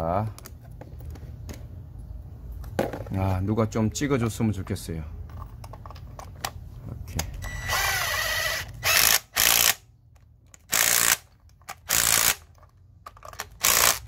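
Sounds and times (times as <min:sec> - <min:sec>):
cordless power driver bursts: 0:10.7 - 0:11.2, 0:11.8 - 0:12.4, 0:13.6 - 0:14.0.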